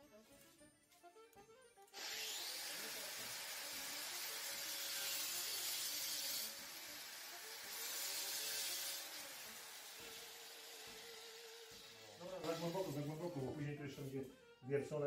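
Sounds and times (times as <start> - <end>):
power tool cutting metal: 1.9 - 13.3.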